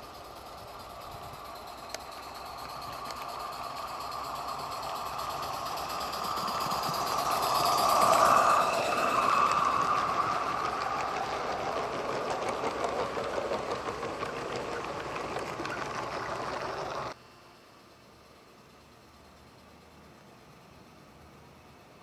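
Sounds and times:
model train wheels clattering: 0:00.0 - 0:17.2.

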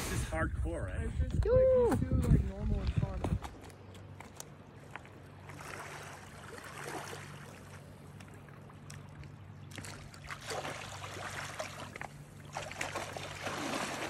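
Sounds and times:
steady low hum: 0:00.0 - 0:14.0
water lapping on pebbles: 0:04.8 - 0:14.0.

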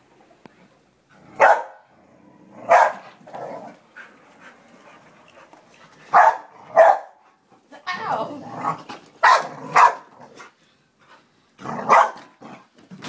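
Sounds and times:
dog barking: 0:01.4 - 0:01.9, 0:02.7 - 0:03.1, 0:06.1 - 0:07.2, 0:09.2 - 0:10.1, 0:11.8 - 0:12.3.

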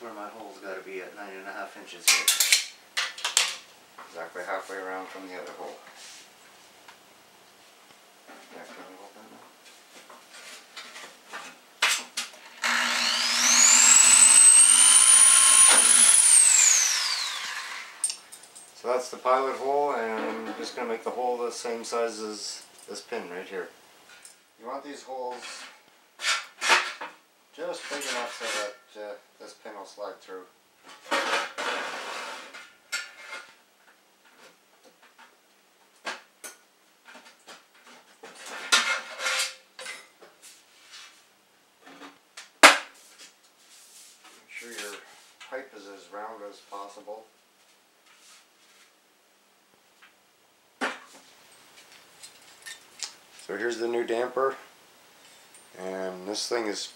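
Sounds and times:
electric drill whining: 0:12.4 - 0:18.1.

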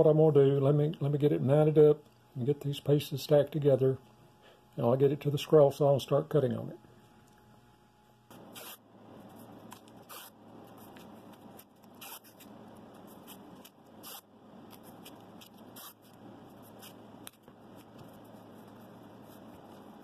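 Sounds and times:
hands rubbing tape: 0:08.3 - 0:20.0
tape ripping off roll: 0:09.7 - 0:10.4, 0:11.4 - 0:12.5.

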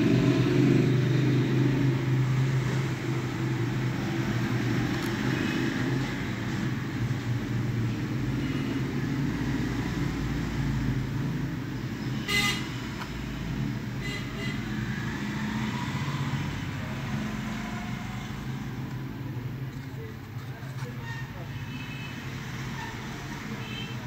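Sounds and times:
road traffic rumble: 0:00.0 - 0:24.0
car horn toot: 0:12.2 - 0:12.7.

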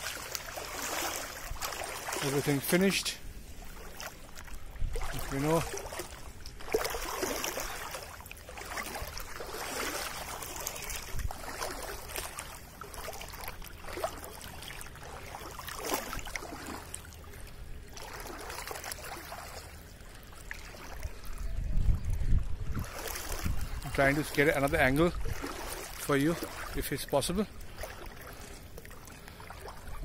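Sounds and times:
floodwater sloshing and splashing: 0:00.0 - 0:30.0
wind rumbling on microphone: 0:03.2 - 0:08.0, 0:08.6 - 0:12.4, 0:20.6 - 0:26.0, 0:29.6 - 0:30.0.

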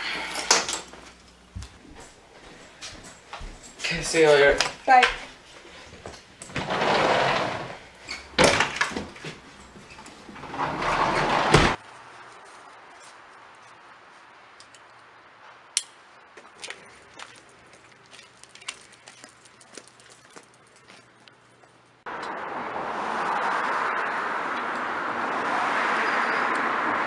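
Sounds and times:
rustling and scraping: 0:04.6 - 0:14.3
door opening and shutting: 0:06.5 - 0:11.8.

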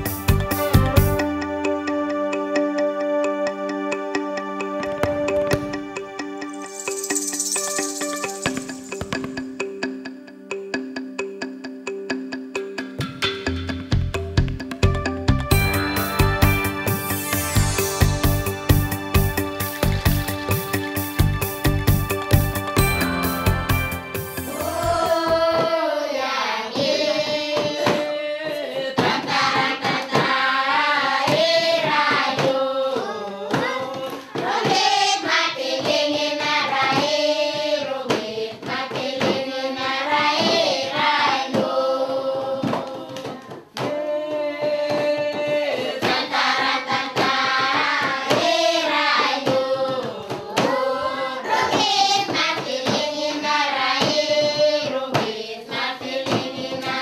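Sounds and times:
rhythmic hand claps: 0:18.2 - 0:57.0
group of voices singing: 0:24.4 - 0:57.0.

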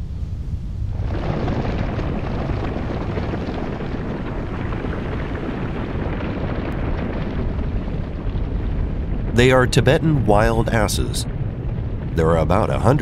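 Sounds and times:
hooves galloping on dry ground: 0:01.0 - 0:09.4.

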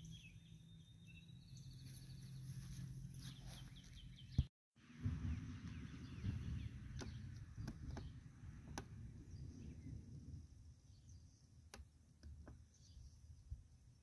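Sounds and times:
low microphone rumble: 0:04.8 - 0:10.9.

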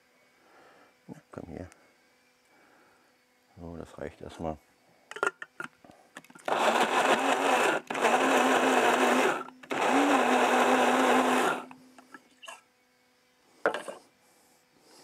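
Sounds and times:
electric chopper motor pulsing: 0:06.4 - 0:11.8.

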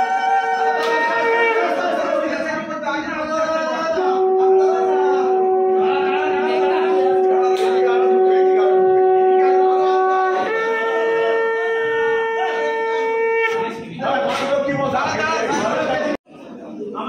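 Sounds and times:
conch shells blown in held notes: 0:00.0 - 0:02.2, 0:03.7 - 0:13.9
murmur of people: 0:00.0 - 0:17.0.

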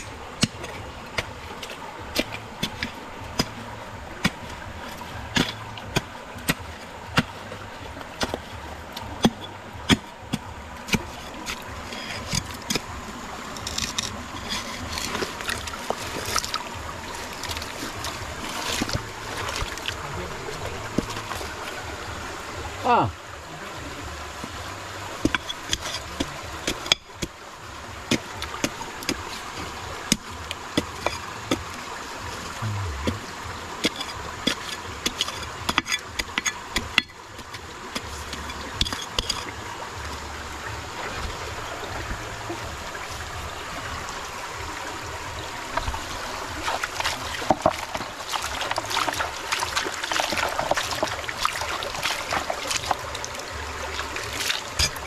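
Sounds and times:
rock scrubbed in muddy water: 0:00.0 - 0:55.0
running water: 0:00.0 - 0:55.0
hand tool scraping gravelly rock: 0:10.9 - 0:12.9, 0:13.5 - 0:16.6, 0:25.2 - 0:27.0, 0:33.8 - 0:39.5, 0:46.6 - 0:53.0, 0:54.3 - 0:55.0.

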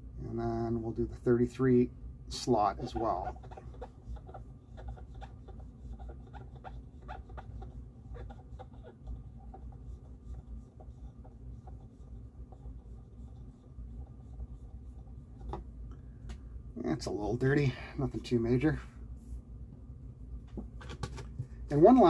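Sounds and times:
cotton swab scratching pulley: 0:02.5 - 0:15.6.

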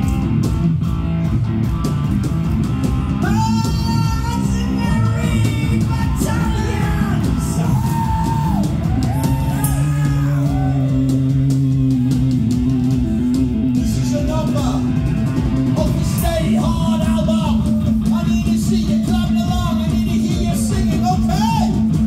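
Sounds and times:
bass guitar: 0:00.0 - 0:22.0
distorted electric guitar: 0:00.0 - 0:22.0
drums with cymbal crashes: 0:00.0 - 0:22.0
man singing: 0:15.8 - 0:21.7.

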